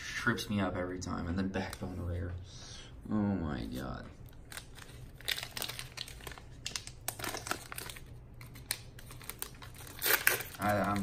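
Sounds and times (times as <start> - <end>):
card pack wrapper crinkling: 3.8 - 11.0.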